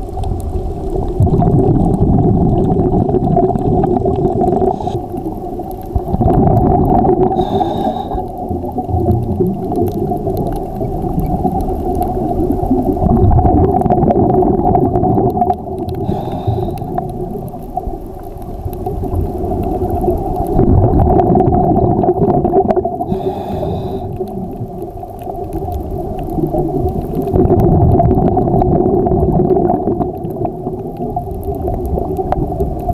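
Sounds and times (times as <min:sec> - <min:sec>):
low underwater rumble: 0:00.0 - 0:32.9
regulator breath hiss: 0:07.4 - 0:08.2, 0:16.0 - 0:17.0, 0:23.1 - 0:24.2.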